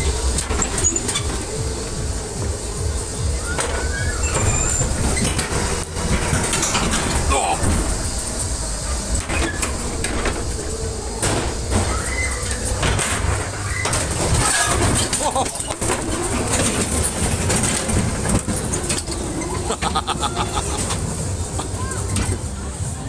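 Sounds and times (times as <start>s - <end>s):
ride car rumbling on track: 0.0s - 23.0s
voices in background: 21.4s - 23.0s.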